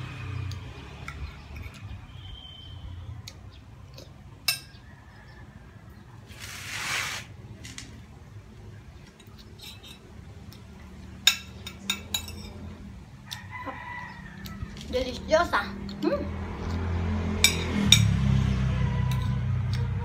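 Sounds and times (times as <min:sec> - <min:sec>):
short rush of noise: 0:06.3 - 0:07.8.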